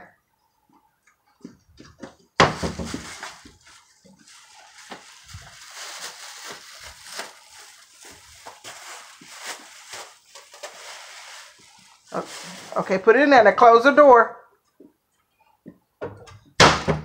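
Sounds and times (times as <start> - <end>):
plastic bags crinkling: 2.4 - 13.4.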